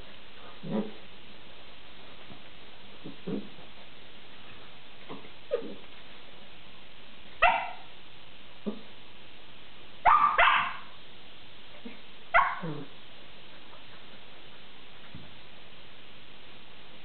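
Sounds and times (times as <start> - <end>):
dog barking: 7.4 - 7.9, 10.0 - 11.0, 12.3 - 12.9.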